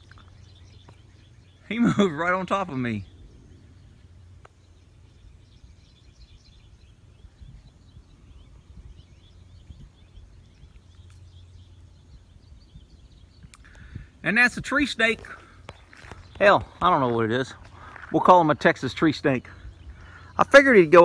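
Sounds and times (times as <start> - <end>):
faint birds chirping: 0.0 - 21.0
low outdoor rumble: 0.0 - 21.0.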